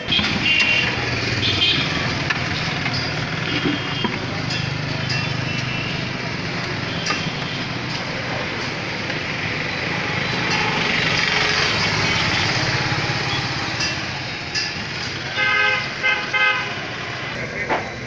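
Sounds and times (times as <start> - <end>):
vehicle horn honking: 0.0 - 2.1, 3.4 - 4.3, 15.3 - 17.0
busy street traffic: 0.0 - 18.0
vehicle passing: 0.9 - 18.0.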